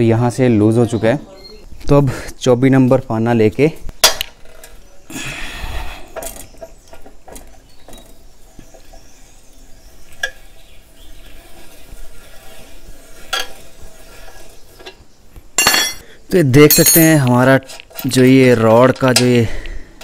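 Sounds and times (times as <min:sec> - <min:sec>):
spanner clinking on axle nut: 0:15.6 - 0:16.0, 0:16.6 - 0:17.3.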